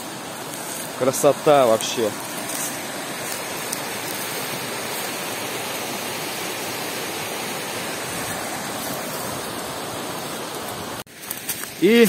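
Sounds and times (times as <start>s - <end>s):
brook rushing over stones: 0.0s - 12.0s.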